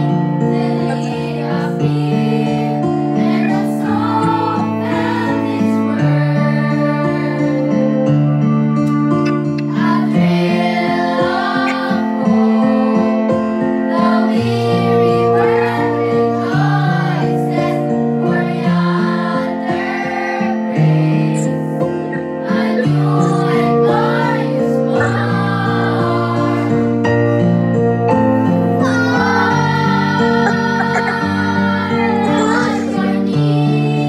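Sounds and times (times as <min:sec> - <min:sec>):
children singing a carol: 0:00.0 - 0:08.0, 0:09.4 - 0:27.0, 0:28.6 - 0:34.0
held instrumental chords: 0:08.7 - 0:10.4, 0:28.8 - 0:33.3.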